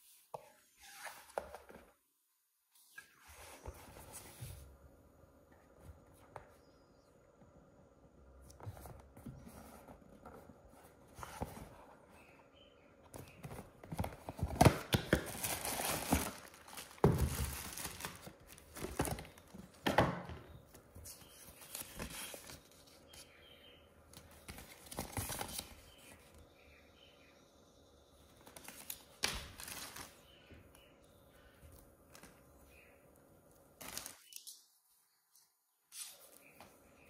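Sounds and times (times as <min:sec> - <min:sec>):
rustling and crinkling: 0:08.4 - 0:20.0.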